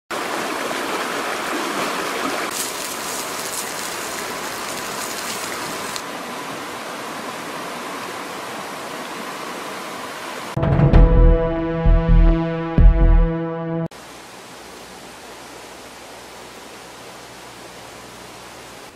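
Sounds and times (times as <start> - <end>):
river rushing in rapids: 0.1 - 10.6
music: 10.6 - 13.9.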